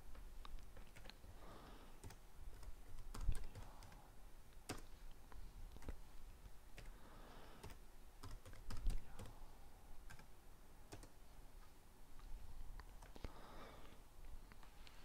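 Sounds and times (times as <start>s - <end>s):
keyboard keystrokes: 2.0s - 4.0s, 7.6s - 9.3s.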